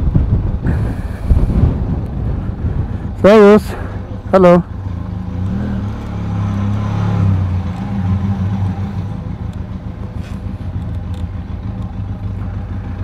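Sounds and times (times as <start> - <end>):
engine idling: 8.6 - 13.0.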